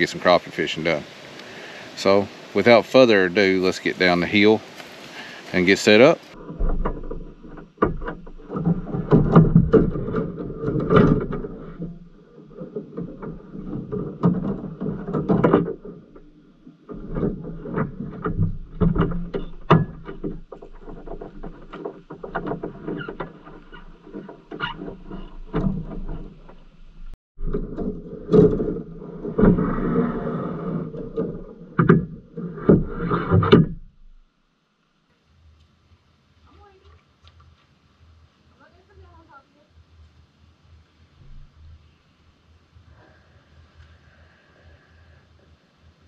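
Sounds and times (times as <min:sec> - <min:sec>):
rods scraping across car roof: 0:05.5 - 0:33.8.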